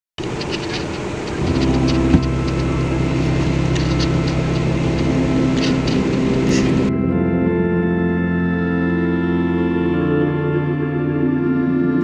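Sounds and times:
rain ticking on a car: 0:00.2 - 0:06.3
steady low hum: 0:00.2 - 0:12.0.

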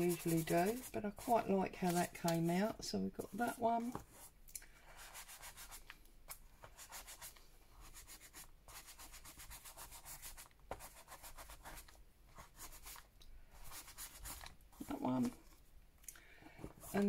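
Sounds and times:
hands rubbing paper: 0:00.0 - 0:02.5, 0:05.0 - 0:15.4.

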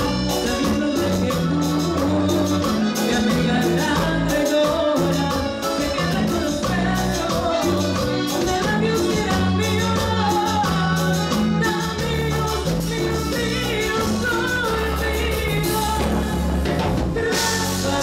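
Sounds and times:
live band playing latin song: 0:00.0 - 0:18.0
woman singing into microphone: 0:00.0 - 0:18.0.

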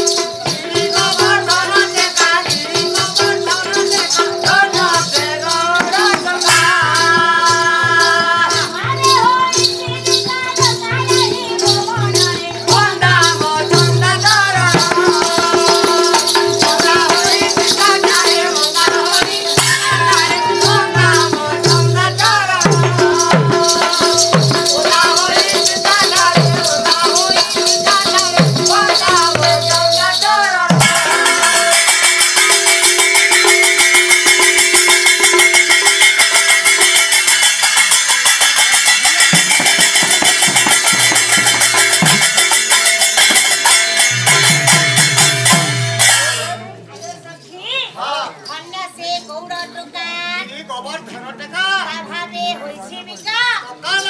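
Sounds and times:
wavering melody: 0:00.0 - 0:47.4
rattling and jingling percussion: 0:00.0 - 0:51.1, 0:52.4 - 0:54.0.

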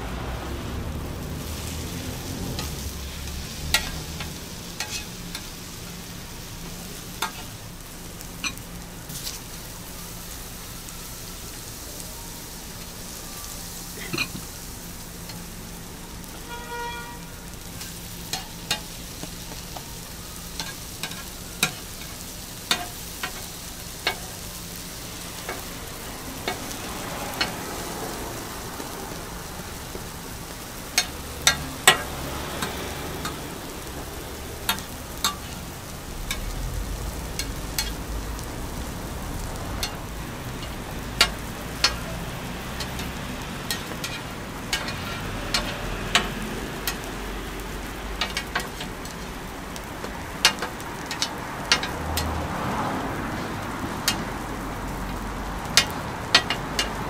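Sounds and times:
food sizzling on a griddle: 0:00.0 - 0:57.0
metal spatula scraping griddle: 0:02.5 - 0:05.5, 0:42.8 - 0:47.0.

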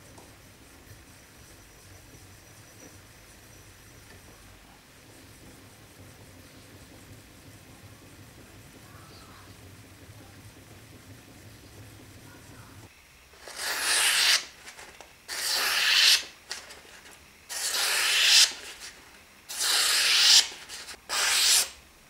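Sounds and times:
blade slicing paper: 0:13.4 - 0:21.8.

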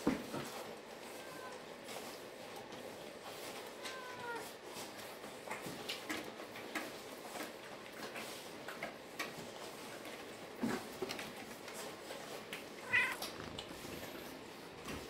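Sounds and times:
puppies suckling: 0:02.2 - 0:15.0
puppy whining: 0:03.7 - 0:04.5, 0:12.8 - 0:14.0.

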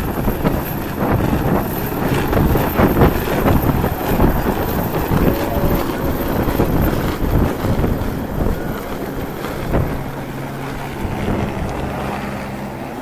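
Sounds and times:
helicopter rotor and turbine: 0:00.0 - 0:13.0
rotor downwash buffeting microphone: 0:00.0 - 0:13.0.

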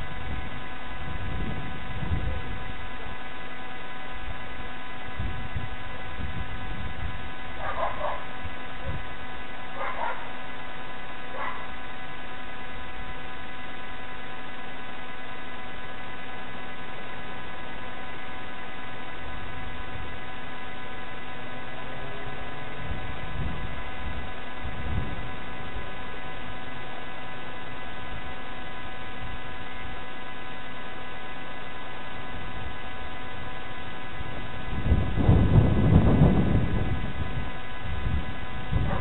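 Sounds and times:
steady electrical hum: 0:00.0 - 0:39.0
dog barking: 0:07.6 - 0:08.3, 0:09.7 - 0:10.4, 0:11.3 - 0:11.7.

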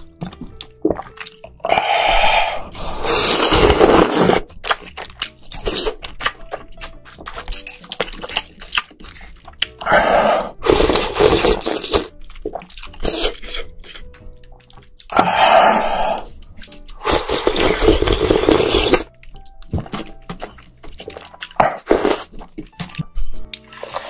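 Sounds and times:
wet chewing clicks: 0:00.0 - 0:02.0, 0:03.8 - 0:09.9, 0:10.5 - 0:15.3, 0:16.2 - 0:23.9
person slurping noodles: 0:01.6 - 0:04.5, 0:09.8 - 0:12.1, 0:15.1 - 0:16.3, 0:17.0 - 0:19.1, 0:21.5 - 0:22.3, 0:23.6 - 0:24.0.

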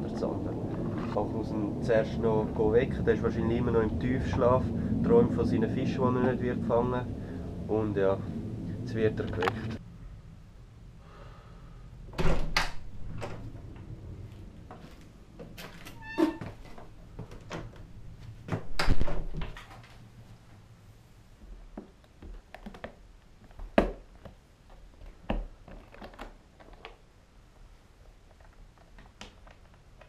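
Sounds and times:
door squeak: 0:15.6 - 0:16.8
plastic boxes clicking and rattling: 0:21.8 - 0:27.0.

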